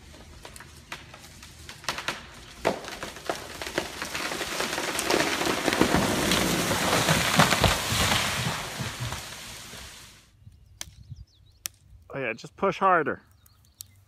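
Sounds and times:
branches snapping and crashing: 0.0s - 10.0s
wood cracking: 0.0s - 10.1s
tree trunk thudding on ground: 0.5s - 9.6s.

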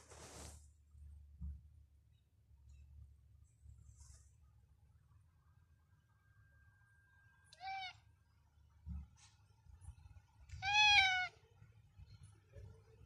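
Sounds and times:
cat meowing: 7.5s - 8.0s, 10.6s - 11.4s.

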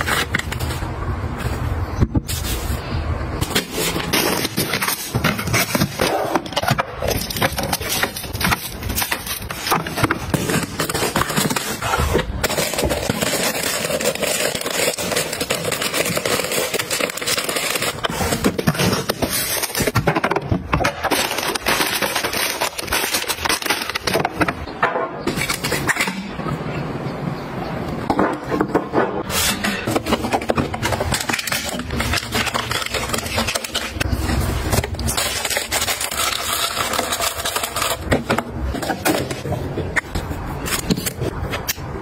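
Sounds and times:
plastic wrappers crinkling: 3.4s - 24.7s, 29.8s - 41.5s.

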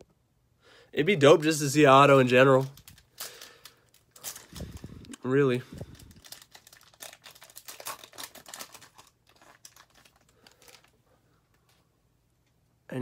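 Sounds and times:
wrapper tearing and crinkling: 2.1s - 11.0s.

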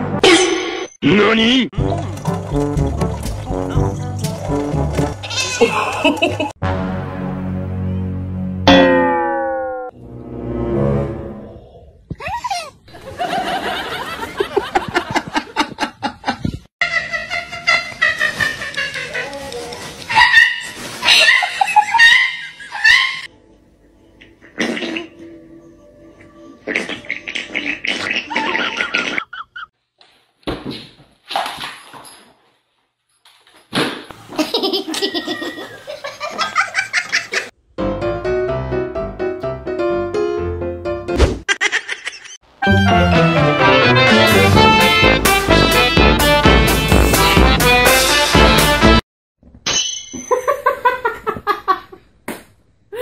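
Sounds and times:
person laughing: 5.5s - 6.6s, 34.3s - 37.5s, 41.5s - 42.4s
person laughing hard: 5.6s - 6.6s, 41.5s - 42.4s.

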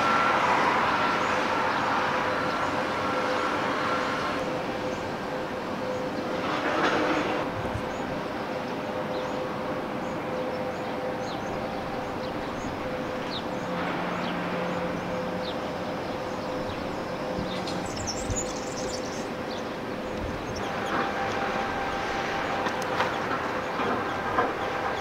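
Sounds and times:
mechanical hum and rumble: 0.0s - 25.0s
bird chirps: 10.0s - 21.0s.

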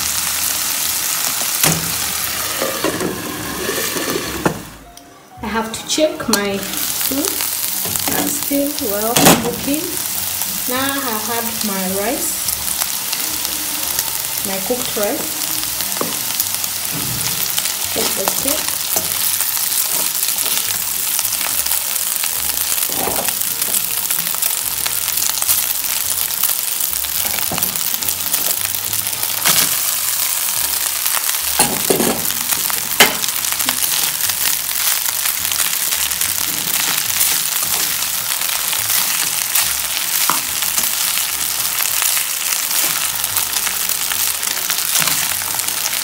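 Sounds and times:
food sizzling in a pan: 0.0s - 4.8s, 5.7s - 46.0s
metal spatula scraping a pan: 2.4s - 4.6s.

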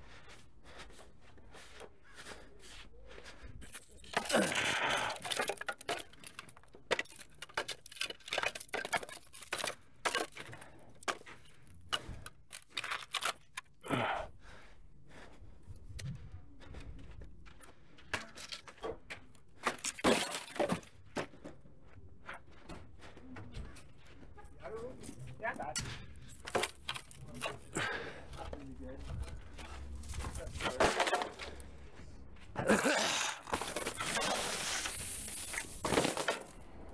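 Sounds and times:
hand tools scraping and clinking: 3.6s - 13.8s, 25.0s - 32.0s, 32.6s - 36.6s.

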